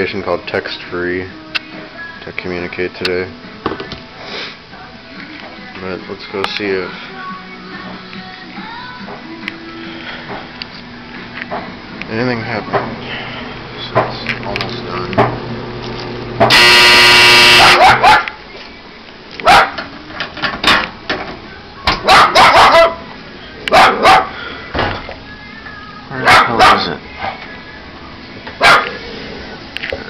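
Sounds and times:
clothes dryer buzzer: 0:14.9 - 0:18.0
dog barking: 0:17.5 - 0:18.4, 0:19.4 - 0:19.8, 0:22.0 - 0:23.0, 0:23.7 - 0:24.4, 0:26.2 - 0:26.9, 0:28.6 - 0:29.0.

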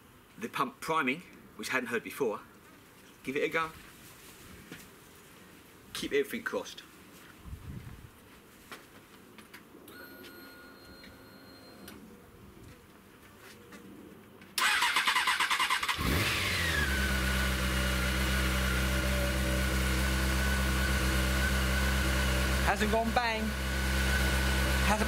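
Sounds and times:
electric starter cranking: 0:14.6 - 0:25.0
motorcycle engine revving and idling: 0:15.7 - 0:25.0.

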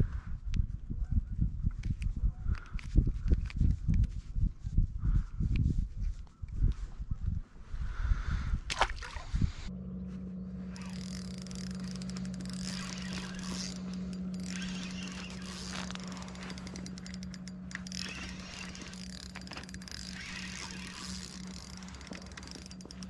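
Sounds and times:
fishing reel cranked with clicking: 0:10.7 - 0:23.0.

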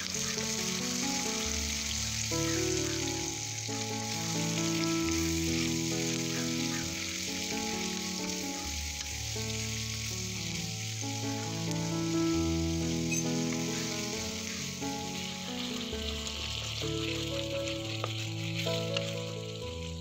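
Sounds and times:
onions sizzling in a pan: 0:00.0 - 0:20.0
soft background music: 0:00.0 - 0:20.0
wooden spatula stirring: 0:12.8 - 0:20.0.

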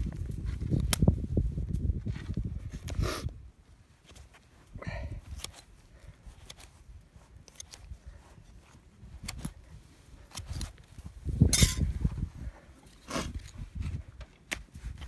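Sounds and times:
hoof nippers snipping: 0:06.3 - 0:08.0.

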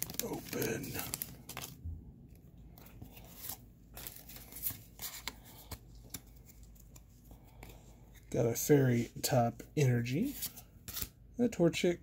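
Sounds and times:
cards rustling and clicking: 0:00.0 - 0:01.8, 0:02.7 - 0:08.3, 0:09.8 - 0:11.2
foil wrapper crinkling: 0:00.0 - 0:01.8.

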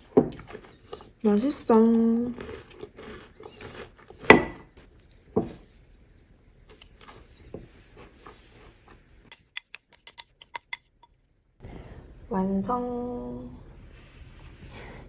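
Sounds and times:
spatula scraping bowl clicks: 0:09.3 - 0:11.2.

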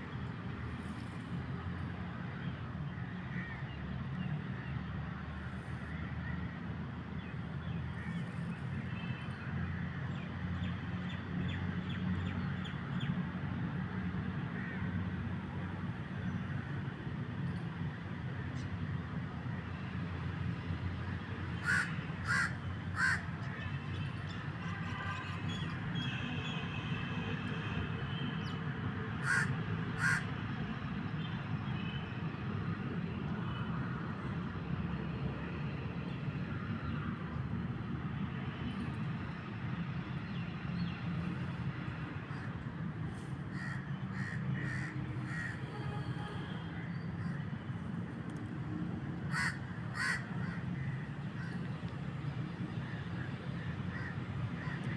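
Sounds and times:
crows cawing: 0:21.6 - 0:23.6, 0:29.2 - 0:30.3, 0:43.5 - 0:45.6, 0:49.3 - 0:51.6, 0:53.9 - 0:54.9.

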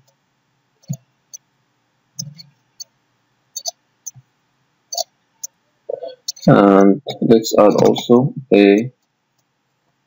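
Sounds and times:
mouse and keyboard clicks: 0:00.8 - 0:01.4, 0:02.2 - 0:02.9, 0:03.6 - 0:04.2, 0:06.2 - 0:06.4.

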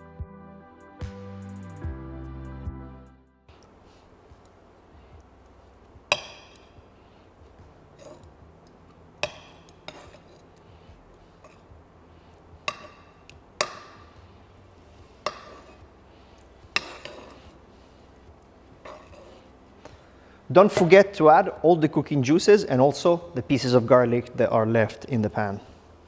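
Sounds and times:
metal spoon clinking on pan: 0:06.1 - 0:06.8, 0:09.2 - 0:10.5, 0:12.6 - 0:14.1, 0:15.2 - 0:15.8, 0:16.7 - 0:17.5.

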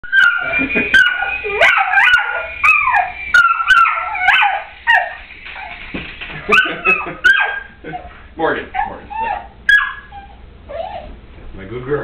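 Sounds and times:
dog barking excitedly: 0:06.4 - 0:07.7, 0:08.8 - 0:10.2.

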